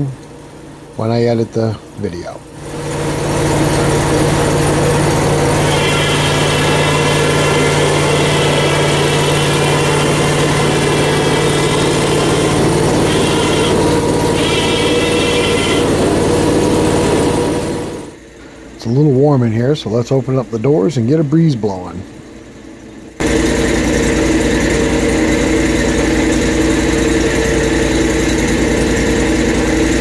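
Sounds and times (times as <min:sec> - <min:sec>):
gas engine running: 0:00.0 - 0:30.0
high whine: 0:02.8 - 0:21.4.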